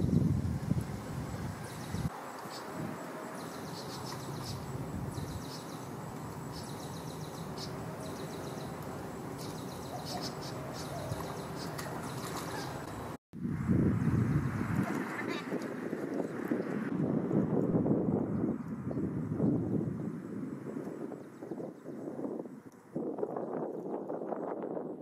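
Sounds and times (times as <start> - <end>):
outdoor background hiss: 0.0 - 14.6.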